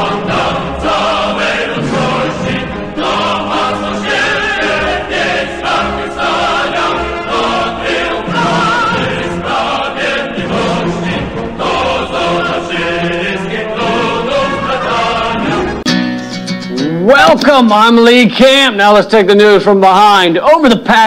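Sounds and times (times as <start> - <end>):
choir singing with vibrato: 0.0 - 15.9
instrumental accompaniment: 0.0 - 19.0.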